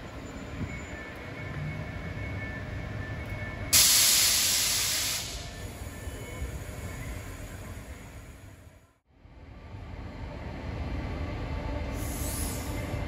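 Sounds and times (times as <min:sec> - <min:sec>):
train low rumble: 0:00.0 - 0:13.0
compressed air hiss: 0:03.8 - 0:06.0, 0:11.9 - 0:12.9.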